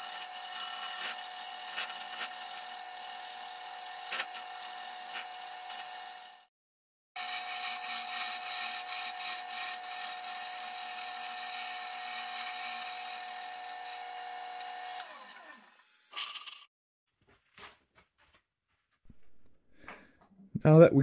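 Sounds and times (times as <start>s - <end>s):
wood lathe humming: 0.0s - 6.5s, 7.2s - 16.1s.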